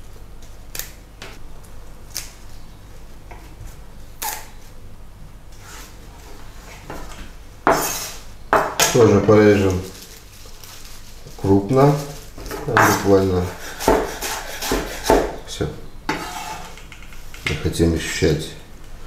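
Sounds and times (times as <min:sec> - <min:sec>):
knife cutting through parsley: 0:12.4 - 0:15.4.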